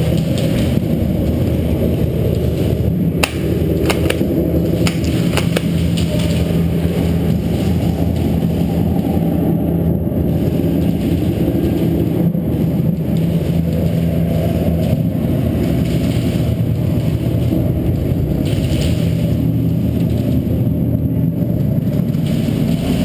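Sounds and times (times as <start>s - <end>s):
low hum and rumble: 0.0s - 23.0s
sharp snaps: 3.2s - 6.4s.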